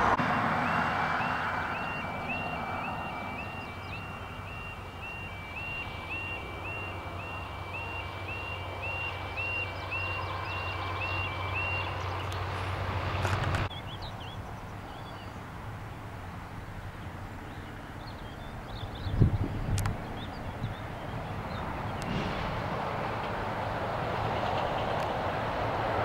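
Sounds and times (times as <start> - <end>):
low vehicle engine rumble: 0.0 - 26.0
level crossing two-tone alarm: 0.3 - 11.8.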